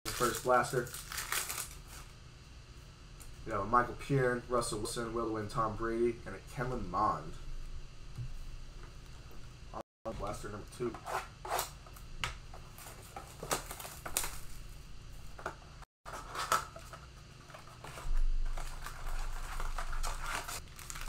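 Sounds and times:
foil packs rustling and crinkling: 0.1s - 2.1s, 12.6s - 15.4s, 16.1s - 21.0s.

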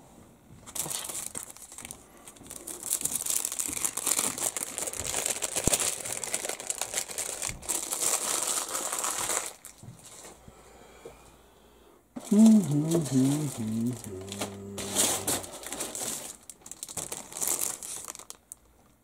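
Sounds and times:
plastic bag crinkling: 0.6s - 10.2s, 12.2s - 18.8s.

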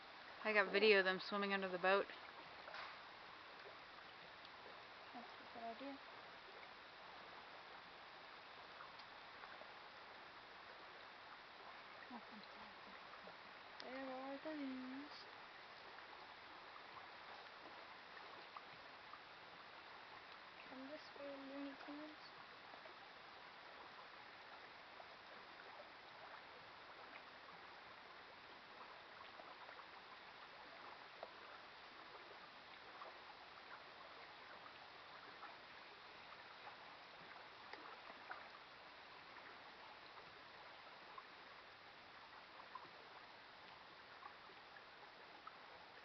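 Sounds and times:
light ticks of water: 0.0s - 46.0s
small lake waves lapping: 0.0s - 46.0s.

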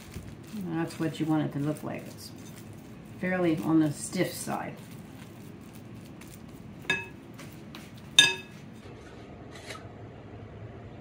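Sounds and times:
clinks on glass bowl: 6.8s - 7.2s, 8.2s - 8.6s.

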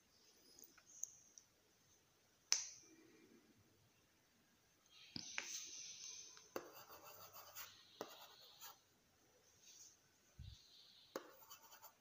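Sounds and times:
stylus scribbling on screen: 6.5s - 8.8s, 11.1s - 12.0s.

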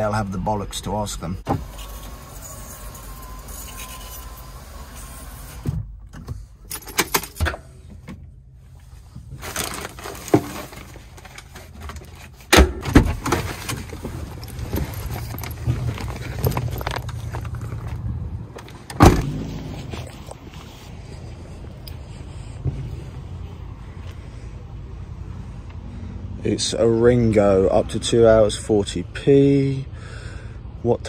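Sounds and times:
footsteps on tarmac: 13.9s - 24.9s
keys jangling: 14.2s - 17.4s
van door thump: 18.9s - 19.4s.

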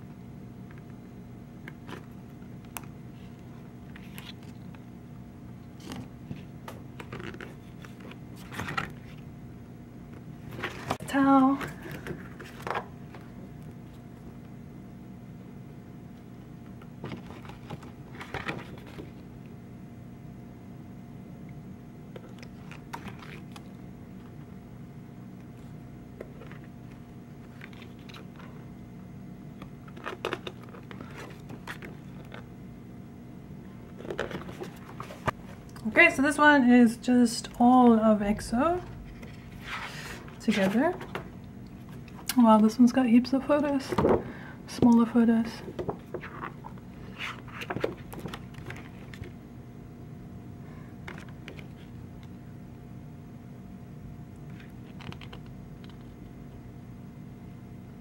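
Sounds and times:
steady low hum: 0.0s - 58.0s
paper pages rustling: 2.8s - 4.7s, 5.8s - 9.2s, 10.4s - 13.3s, 17.0s - 19.2s, 26.2s - 28.6s, 29.8s - 32.5s, 33.9s - 35.6s, 39.1s - 41.2s, 45.7s - 49.4s.

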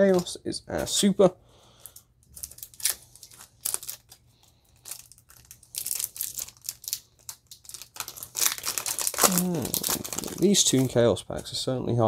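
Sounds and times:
foil wrapper crinkling: 1.8s - 11.1s.

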